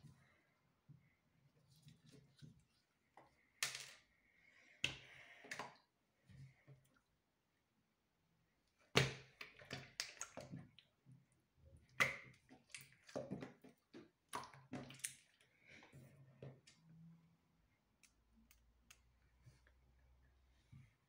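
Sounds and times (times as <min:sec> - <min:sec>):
slime squelching: 0:11.7 - 0:16.8.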